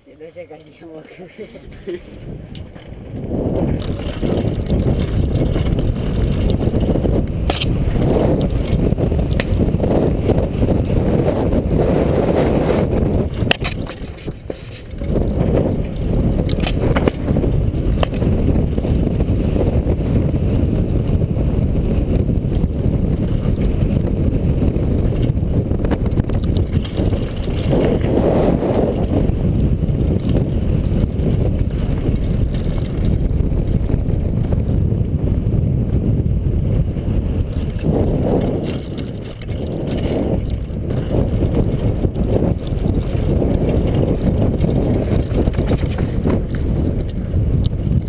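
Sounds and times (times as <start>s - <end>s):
bike tyres rumbling and rattling: 0.0s - 48.0s
wind on microphone: 0.0s - 48.0s
bike knocking on bumps: 2.1s - 48.0s.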